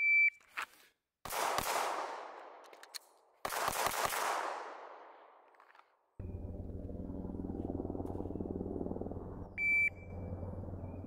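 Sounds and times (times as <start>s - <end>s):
pistol shots with echo: 1.2s - 2.6s, 3.4s - 5.4s.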